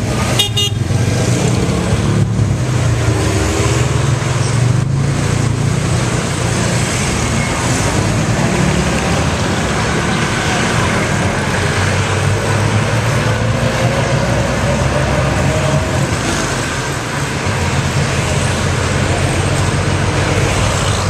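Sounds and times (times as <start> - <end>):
road noise: 0.0 - 21.0.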